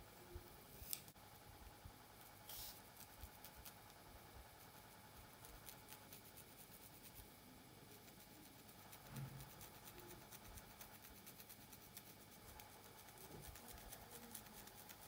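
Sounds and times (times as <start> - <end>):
short brushing hiss: 2.4 - 3.1
fingernails scratching through hair: 2.4 - 3.9.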